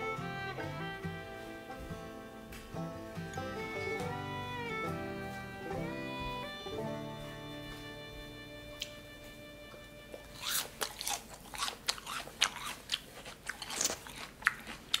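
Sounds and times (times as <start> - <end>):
person chewing crunchy food: 10.2 - 15.0.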